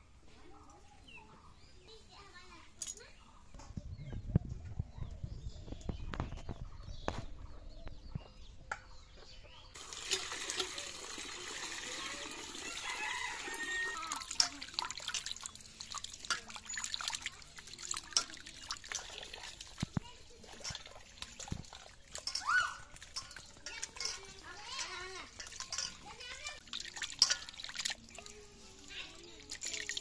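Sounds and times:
water pouring into steel bowl: 9.8 - 30.0.

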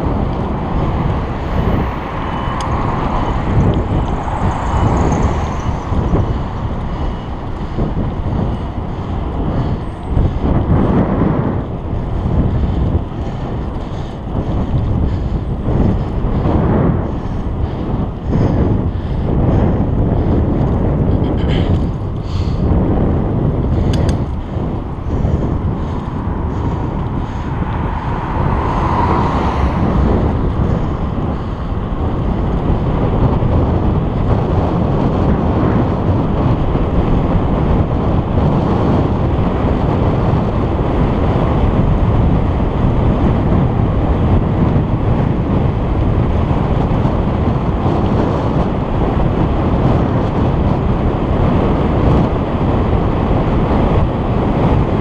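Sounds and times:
bicycle road noise: 0.0 - 55.0
wind buffeting microphone: 0.0 - 55.0.

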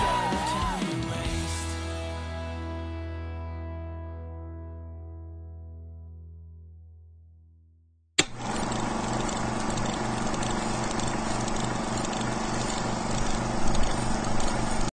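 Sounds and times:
projector switch click: 8.2 - 8.4
film projector whirring: 8.2 - 14.9.

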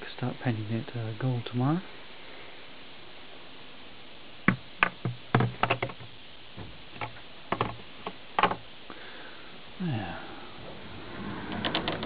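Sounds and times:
objects knocking in cupboard: 4.5 - 7.8.

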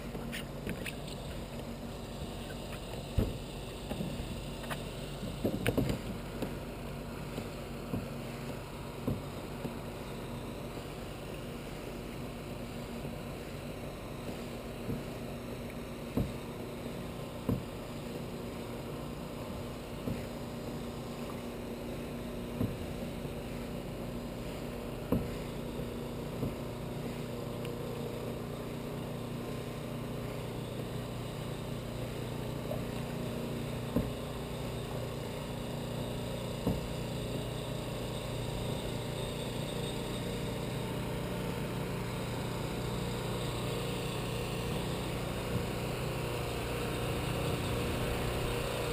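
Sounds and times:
small boat motor running: 0.0 - 48.9
knocks against hull: 3.1 - 6.6, 7.3 - 9.8, 16.1 - 16.5, 17.4 - 17.8, 22.5 - 23.1, 25.0 - 25.4, 33.9 - 34.2, 36.6 - 37.0.

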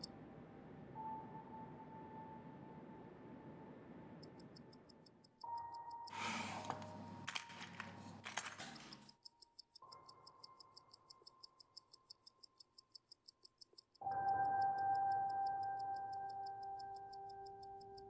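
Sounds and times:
mechanical watch ticking: 4.2 - 6.1, 9.0 - 18.0
rustling and small clicks: 6.6 - 9.3.

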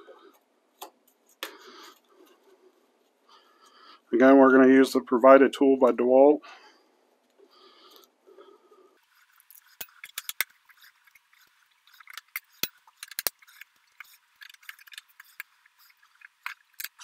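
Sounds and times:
hand tool clicking and scraping: 9.0 - 17.0.

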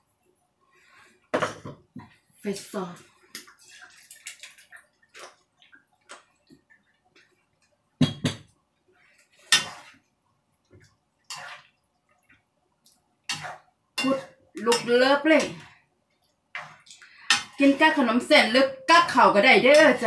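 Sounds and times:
metal spoon scraping frying pan: 9.2 - 10.0, 11.3 - 11.7, 13.3 - 15.6, 16.6 - 18.0.

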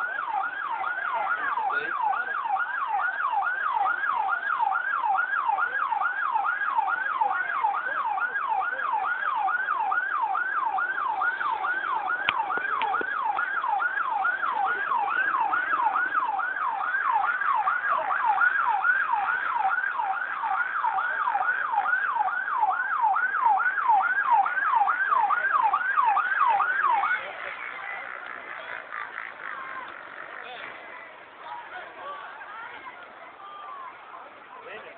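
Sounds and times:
emergency siren yelping: 0.0 - 28.1.

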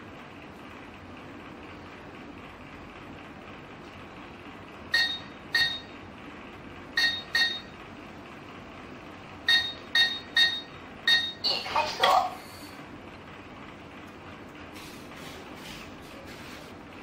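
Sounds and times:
keypad beeps: 4.9 - 5.9, 7.0 - 7.8, 9.5 - 11.6.

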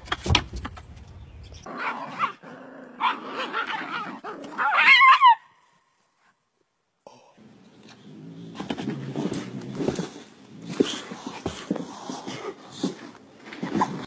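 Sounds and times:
dog barking and yelping: 1.6 - 2.4, 3.0 - 5.5.

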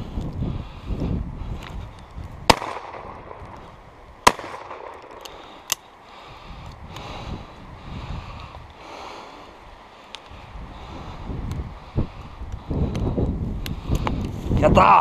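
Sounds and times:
footsteps through heather: 0.0 - 14.7
shotgun shots: 2.5 - 3.5, 4.2 - 5.2.

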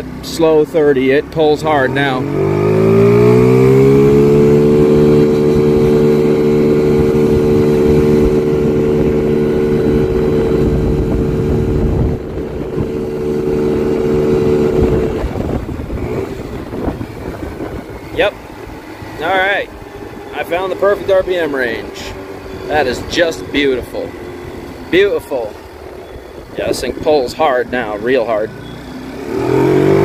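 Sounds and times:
scooter engine at full throttle: 0.0 - 30.0
wind noise on microphone: 2.3 - 19.1, 22.4 - 28.0.

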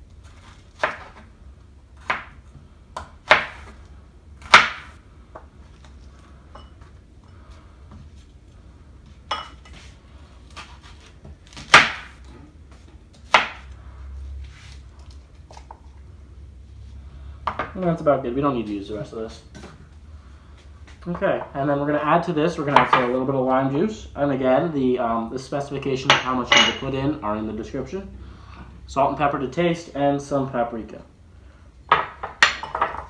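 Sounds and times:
low steady hum: 0.0 - 33.0
knife chopping onto cutting board: 3.0 - 3.8, 4.4 - 5.0, 11.5 - 12.2, 13.3 - 13.6.

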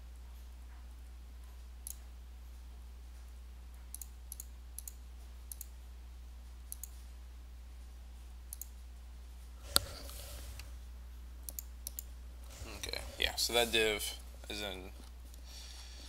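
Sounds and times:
steady low hum: 0.0 - 16.0
computer mouse clicks: 3.8 - 5.7, 6.7 - 7.0, 8.5 - 8.8, 9.7 - 10.7, 11.5 - 12.1.

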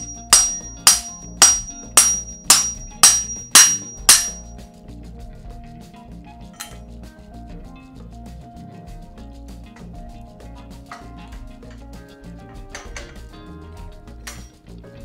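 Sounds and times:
hammer striking metal tool: 0.0 - 4.5, 14.3 - 14.5
soft background music: 0.0 - 15.0.

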